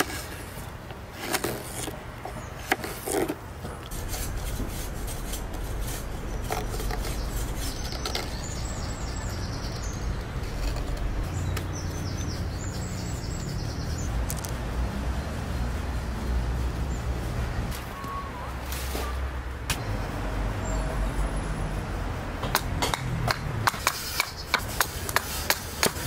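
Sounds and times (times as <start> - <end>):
low rumble: 3.8 - 12.3.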